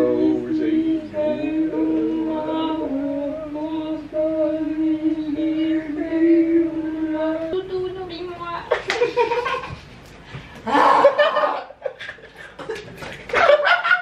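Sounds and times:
voices singing held notes: 0:00.0 - 0:08.5.

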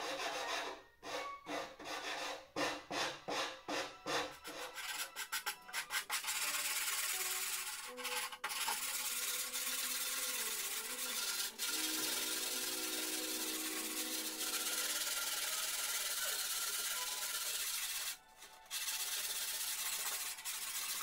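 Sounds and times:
sandpaper rubbing on wood: 0:04.4 - 0:21.0.

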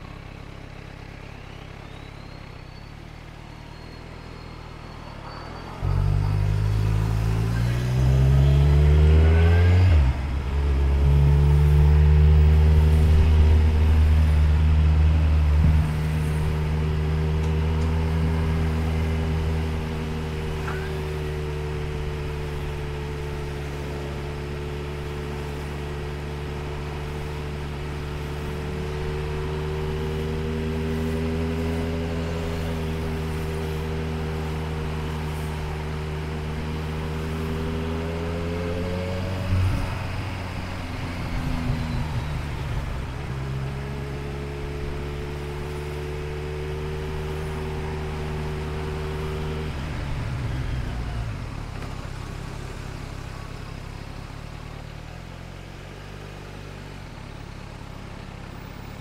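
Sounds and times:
motorcycle engine cruising: 0:00.0 - 0:59.0
road and wind noise: 0:00.0 - 0:59.0.

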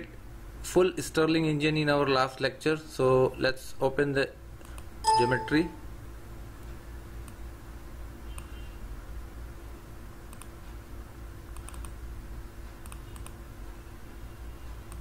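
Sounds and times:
low electrical hum: 0:00.0 - 0:15.0
computer mouse clicking: 0:04.6 - 0:04.9, 0:08.3 - 0:08.6, 0:10.3 - 0:10.6, 0:11.5 - 0:12.0, 0:12.8 - 0:13.4.

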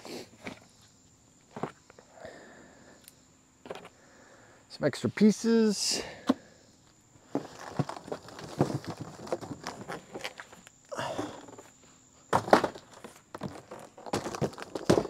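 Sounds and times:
cardboard rustling: 0:07.3 - 0:10.6
knocks and thumps on box: 0:07.4 - 0:10.0, 0:12.3 - 0:15.0
cardboard box scraping: 0:07.4 - 0:10.4.

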